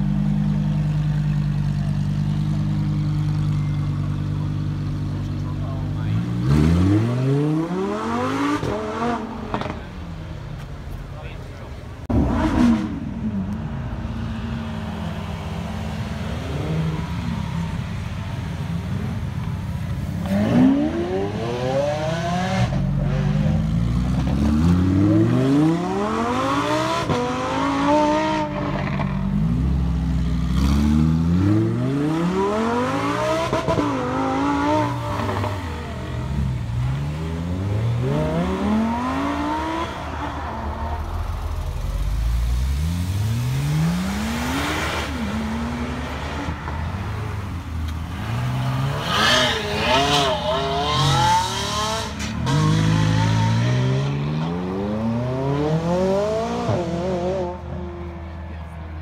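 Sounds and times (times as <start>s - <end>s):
supercar engines revving: 0.0s - 59.0s.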